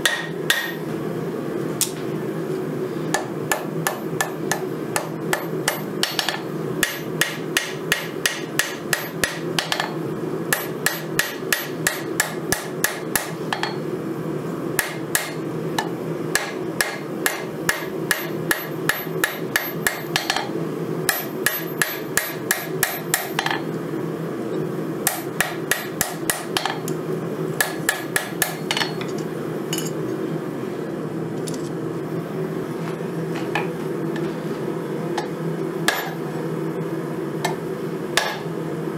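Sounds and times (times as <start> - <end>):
hammer striking steel on anvil: 0.0 - 0.8, 3.2 - 13.8, 16.3 - 20.5, 21.1 - 23.6, 25.1 - 26.8, 27.6 - 29.1, 35.9 - 36.2, 38.2 - 38.4.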